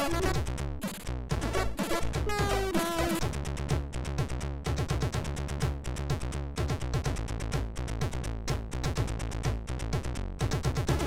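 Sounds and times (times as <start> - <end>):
chiptune music: 0.0 - 3.4.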